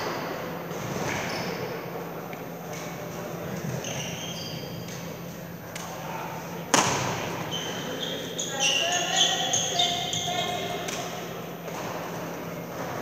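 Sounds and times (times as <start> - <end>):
shoes squeaking on floor: 0.8 - 1.9, 3.5 - 5.1, 7.2 - 10.9
racket striking shuttlecock: 6.7 - 7.2.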